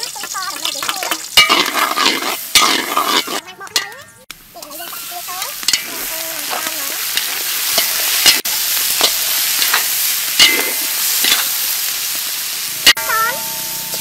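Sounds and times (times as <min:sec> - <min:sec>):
metal spatula scraping a wok: 0:00.0 - 0:04.0, 0:04.6 - 0:14.0
shrimp sizzling in hot oil: 0:00.0 - 0:14.0.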